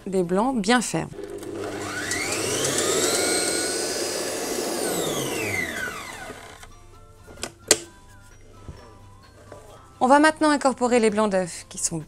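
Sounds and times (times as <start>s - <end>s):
stand mixer motor whine: 1.2s - 6.7s.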